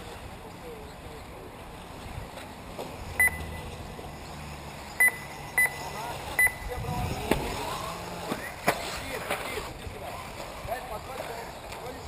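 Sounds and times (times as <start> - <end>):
short high electronic beeps: 3.2 - 3.6, 5.0 - 6.7.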